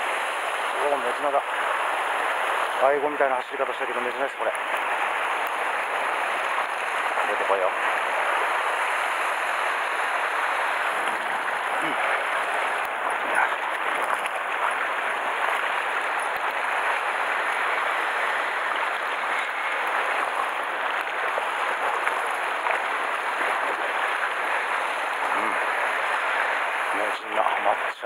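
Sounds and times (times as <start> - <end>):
surf washing against rocks: 0.0 - 28.0.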